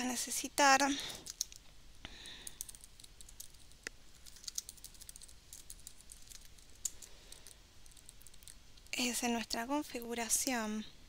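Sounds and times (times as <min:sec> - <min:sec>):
keyboard typing: 0:02.4 - 0:08.6.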